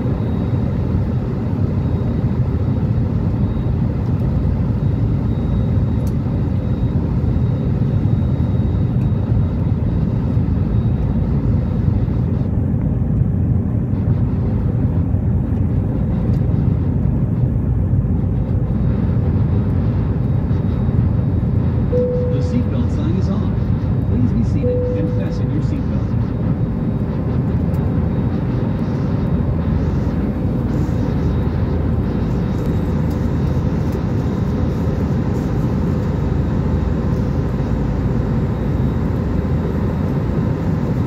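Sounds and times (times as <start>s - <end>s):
jet engines rumbling: 0.0s - 41.0s
thin high whine: 20.0s - 40.2s.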